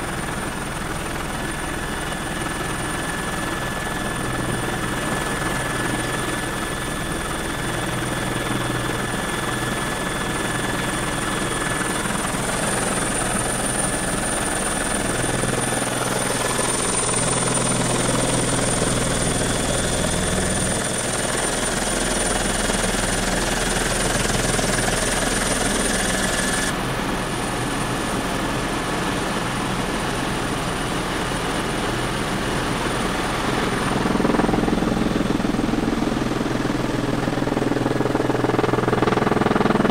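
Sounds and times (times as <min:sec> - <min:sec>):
helicopter engine and rotor: 0:00.0 - 0:39.9.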